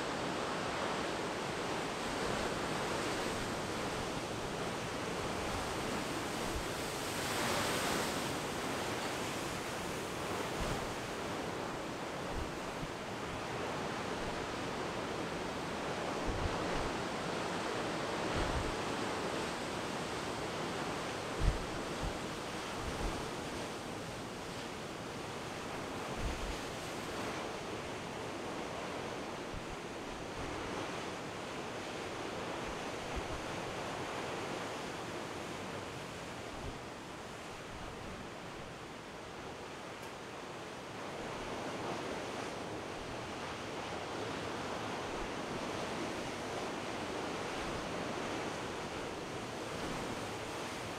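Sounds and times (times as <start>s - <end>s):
wind buffeting microphone: 12.3s - 17.1s, 18.2s - 19.0s, 20.6s - 23.7s, 26.0s - 27.5s.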